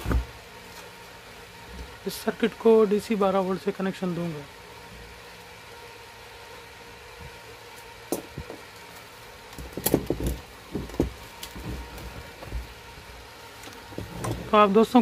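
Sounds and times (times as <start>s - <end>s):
knocks on sheet-metal case: 9.6s - 11.2s.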